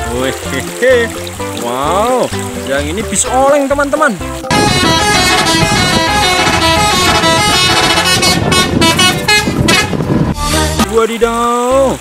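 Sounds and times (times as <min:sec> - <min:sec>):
musical air horns playing a tune: 0:04.4 - 0:10.9.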